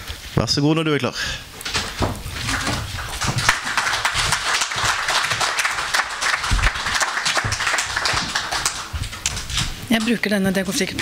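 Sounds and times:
audience applauding: 0:02.4 - 0:09.5.

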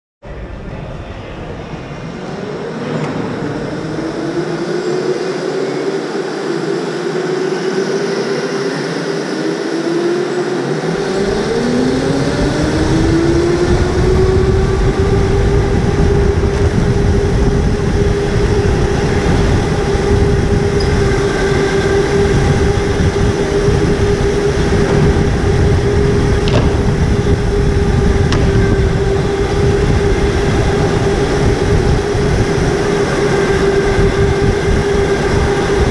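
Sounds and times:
electric motors whining: 0:02.5 - 0:35.9
road rumble: 0:10.9 - 0:35.9
wind on camera: 0:11.0 - 0:35.9.

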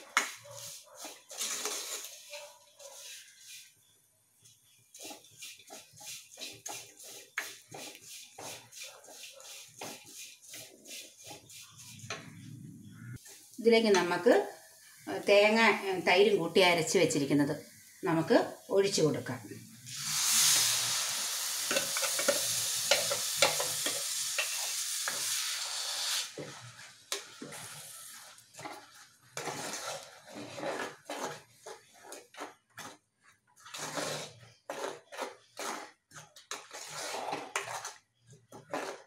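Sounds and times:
paste sizzling in hot pot: 0:00.0 - 0:02.3, 0:02.9 - 0:12.1, 0:13.2 - 0:33.0
metal ladle scraping clay pot: 0:00.5 - 0:03.7, 0:04.9 - 0:13.1, 0:21.6 - 0:25.6, 0:26.3 - 0:33.0, 0:33.6 - 0:39.0.

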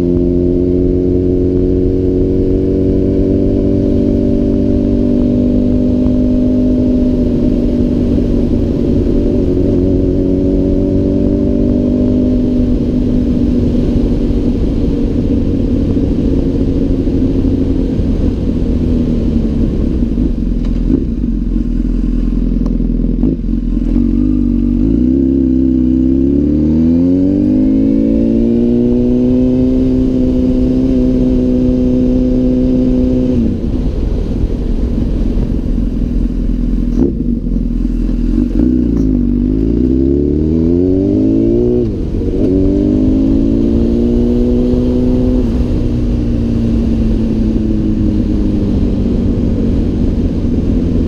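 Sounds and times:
motorcycle engine revving: 0:00.0 - 0:51.0.

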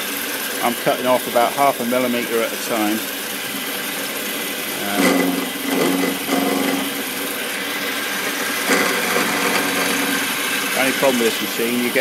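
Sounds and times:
end mill cutting steel: 0:04.5 - 0:11.6
humming tone: 0:04.8 - 0:07.3, 0:08.6 - 0:10.6.

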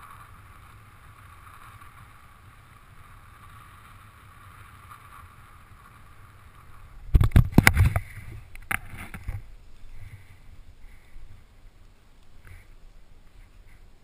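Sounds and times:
rustling in snow: 0:00.0 - 0:14.0
wind noise: 0:00.0 - 0:14.0.

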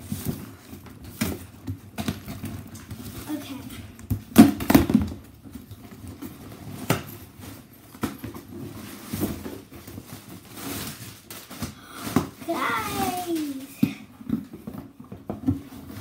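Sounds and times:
cardboard rustling: 0:05.2 - 0:16.0.

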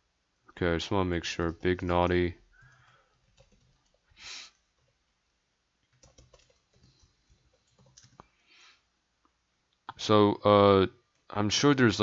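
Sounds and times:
computer keyboard typing: 0:02.6 - 0:05.0, 0:05.8 - 0:08.3.

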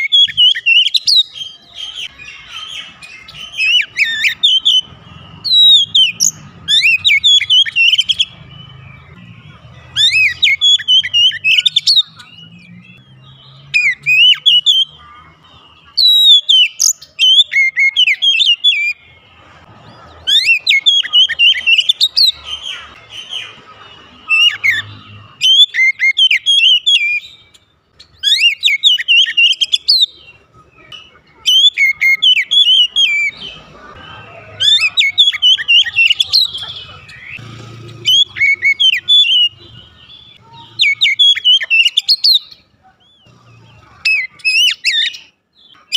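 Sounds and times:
bird singing whistled phrases: 0:00.0 - 0:09.2, 0:09.9 - 0:15.0, 0:16.0 - 0:19.0, 0:20.3 - 0:23.5, 0:24.2 - 0:27.5, 0:28.1 - 0:30.2, 0:38.1 - 0:42.6.

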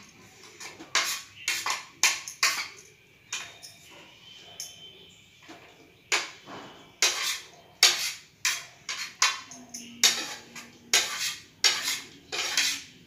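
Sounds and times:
utensil scraping ceramic plate: 0:00.4 - 0:02.8, 0:06.1 - 0:13.0.

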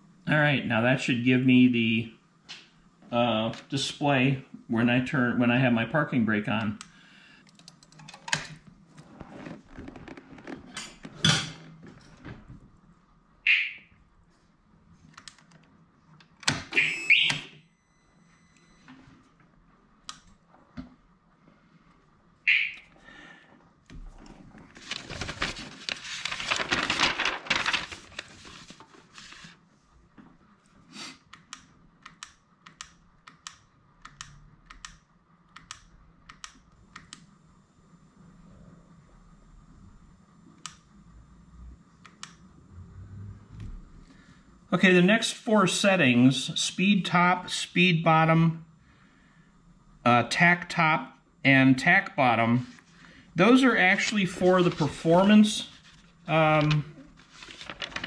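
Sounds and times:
rustling: 0:24.5 - 0:29.6, 0:54.4 - 0:58.0.

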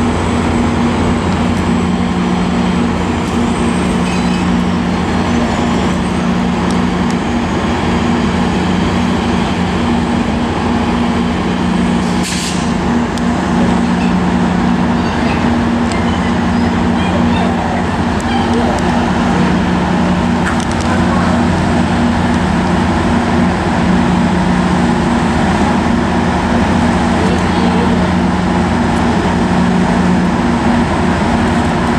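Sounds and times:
diesel locomotives idling: 0:00.0 - 0:31.9
air hiss: 0:12.0 - 0:12.8.

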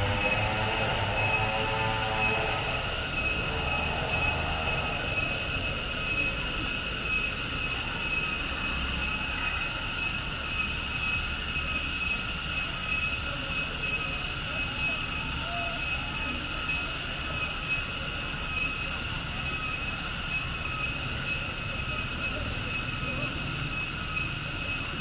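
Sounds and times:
cicadas droning: 0:00.0 - 0:25.0.

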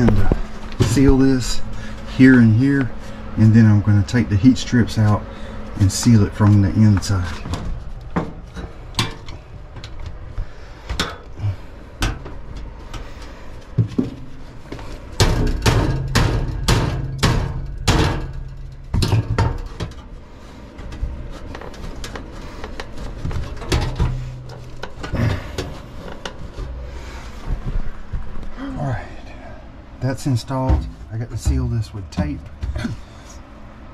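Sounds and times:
hammer striking sheet metal: 0:15.2 - 0:18.5.

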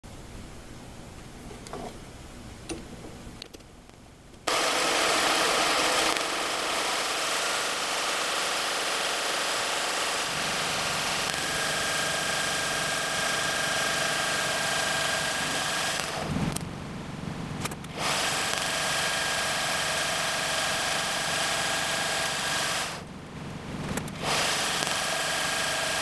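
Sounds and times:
thin whine: 0:04.4 - 0:26.0
metal lathe running: 0:04.5 - 0:16.3, 0:17.9 - 0:23.1, 0:24.2 - 0:26.0.

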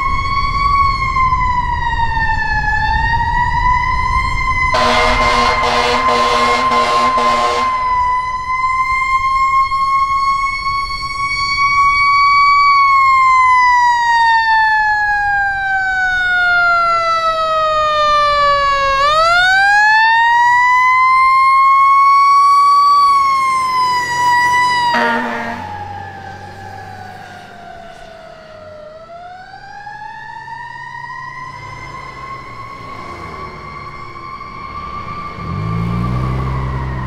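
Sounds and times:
fire truck siren wailing: 0:00.0 - 0:37.0
truck horn blast: 0:04.7 - 0:07.9, 0:24.9 - 0:25.8.

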